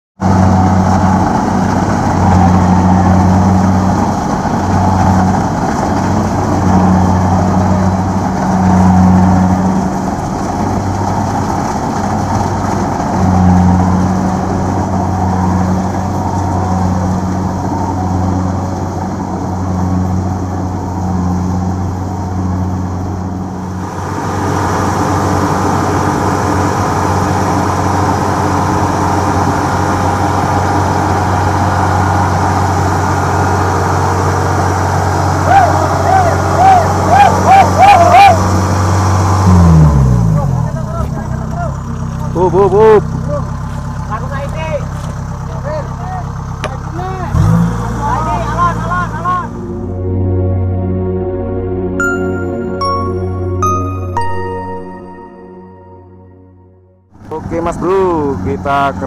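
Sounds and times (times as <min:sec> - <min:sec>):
combine harvester diesel engine: 0:00.2 - 0:54.0, 0:57.1 - 0:59.0.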